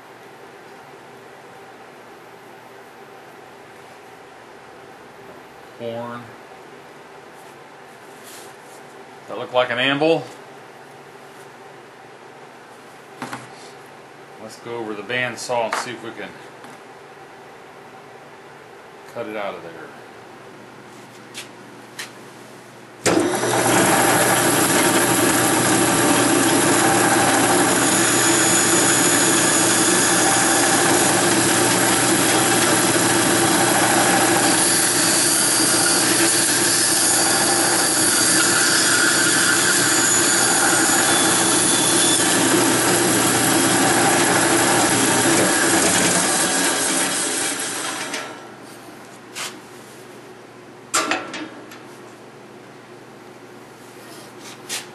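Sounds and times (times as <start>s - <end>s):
bandsaw cutting wood: 23.1s - 48.2s.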